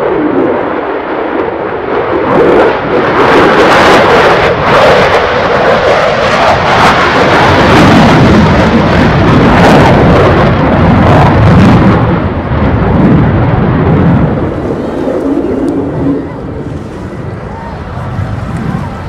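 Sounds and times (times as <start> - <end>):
jet engine roar with crackles: 0.0 - 19.0.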